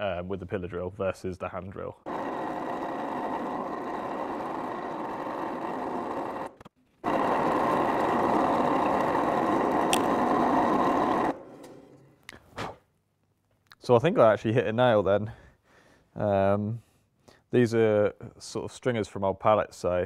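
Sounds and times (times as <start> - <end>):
pillar drill boring into wood: 2.1 - 11.8.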